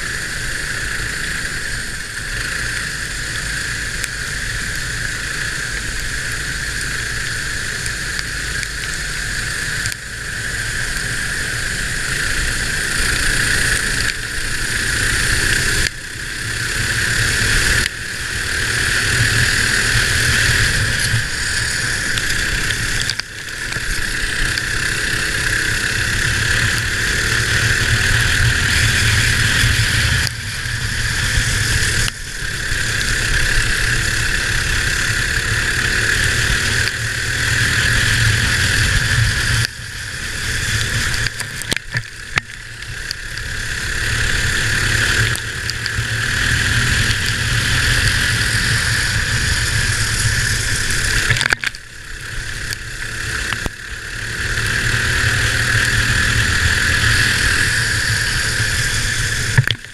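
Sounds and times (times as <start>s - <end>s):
kart engine revving: 0.0s - 59.9s.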